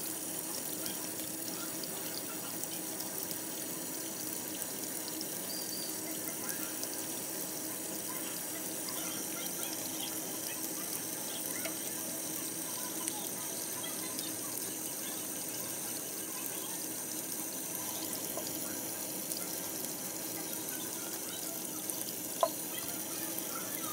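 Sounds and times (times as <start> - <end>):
tap running into steel sink: 18.2 - 18.6, 22.4 - 22.6.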